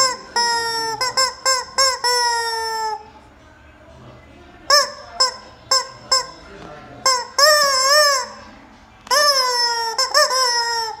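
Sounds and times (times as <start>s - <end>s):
rubber chicken toy squawking: 0.0s - 3.0s, 4.7s - 6.4s, 7.0s - 8.4s, 9.1s - 11.0s.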